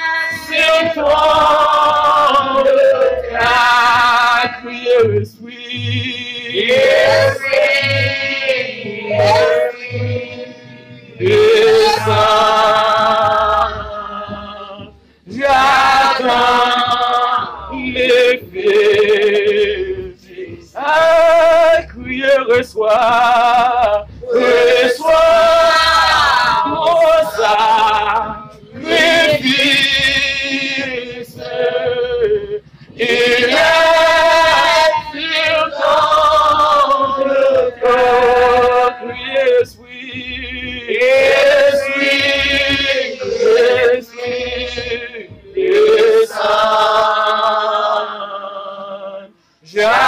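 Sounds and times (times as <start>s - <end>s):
man singing worship song: 0.0s - 50.0s
voices singing together: 0.0s - 50.0s.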